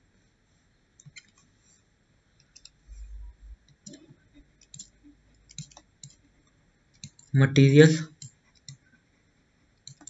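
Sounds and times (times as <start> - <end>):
computer mouse clicks: 1.0 - 1.5, 2.4 - 6.2, 6.9 - 7.3, 8.1 - 8.8, 9.8 - 10.0.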